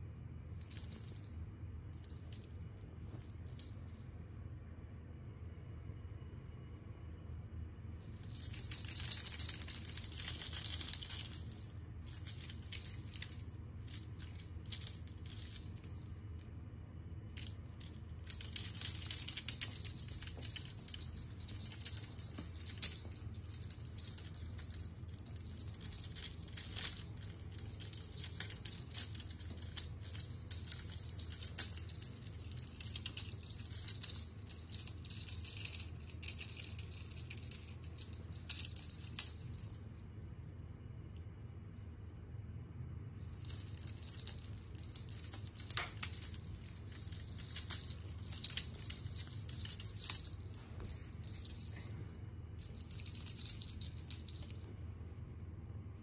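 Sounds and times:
cat toy rattling and jingling: 8.1s - 16.2s, 17.3s - 40.0s, 43.2s - 55.4s.

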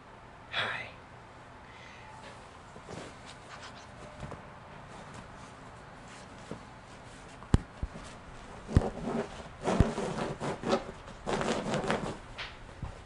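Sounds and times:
dog digging at fabric bed: 8.0s - 12.2s.

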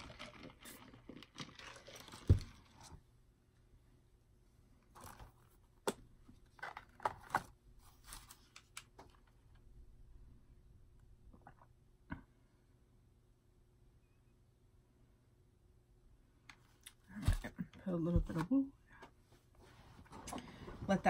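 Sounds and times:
plastic cups and sheeting rustling: 0.0s - 3.0s.

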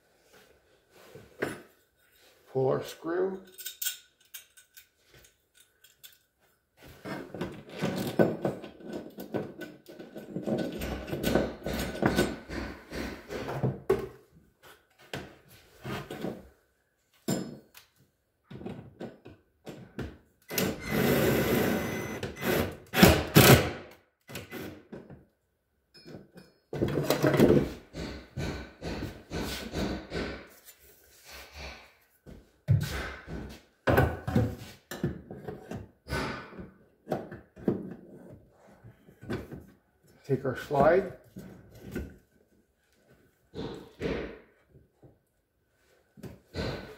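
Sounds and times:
tools scraping metal hardware: 3.4s - 4.9s.

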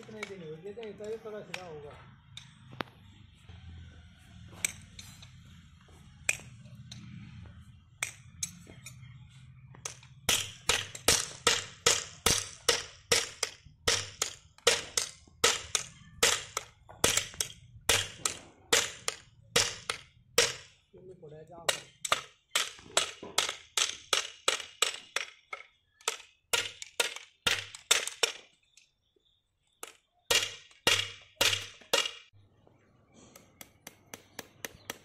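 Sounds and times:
hammer striking metal shoe: 9.8s - 20.7s.

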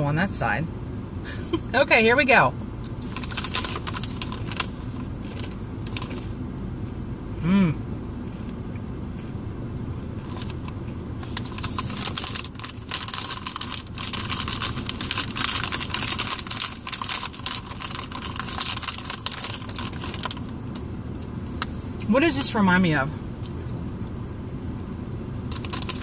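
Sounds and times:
low car hum: 0.0s - 26.0s
crunching of chips being chewed: 3.0s - 6.4s, 10.1s - 21.7s, 25.5s - 26.0s.

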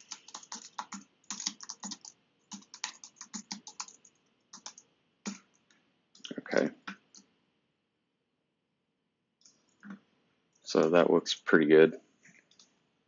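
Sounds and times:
fast keyboard typing: 0.0s - 5.6s.

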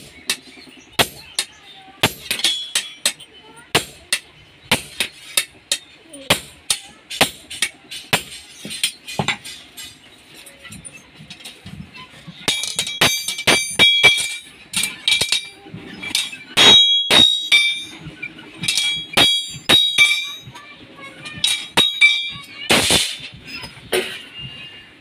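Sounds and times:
hammer striking blade on anvil: 0.0s - 9.4s, 12.5s - 18.0s, 18.6s - 20.5s, 21.4s - 23.2s
blade ringing metallic tone: 12.5s - 20.6s, 21.4s - 22.5s.

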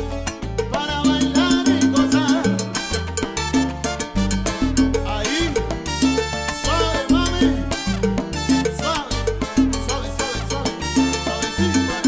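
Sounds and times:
percussion rhythm: 0.0s - 12.0s
pulsing bass: 0.0s - 12.0s
salsa band playing: 0.0s - 12.0s
trumpets: 2.8s - 12.0s.

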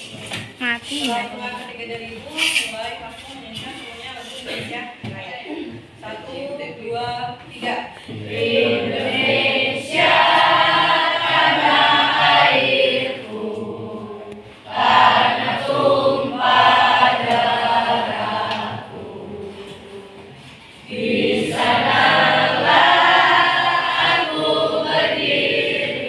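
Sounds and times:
students singing in chorus: 7.6s - 26.0s.

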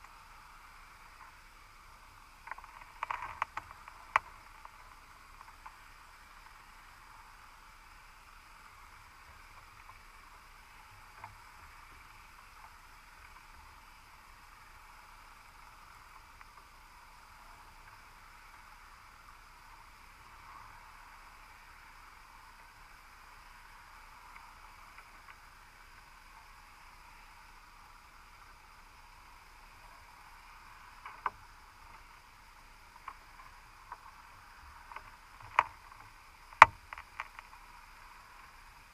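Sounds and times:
faint underwater hiss: 0.0s - 38.9s.

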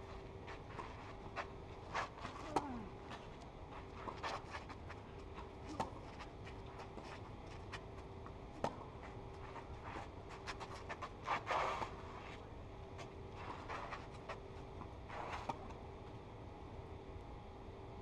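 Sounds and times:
shoes sliding on clay: 0.4s - 7.9s, 9.0s - 15.7s.

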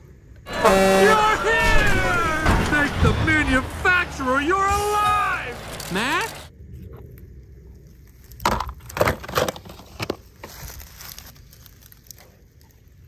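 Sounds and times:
plastic toy truck handling: 8.4s - 10.6s.

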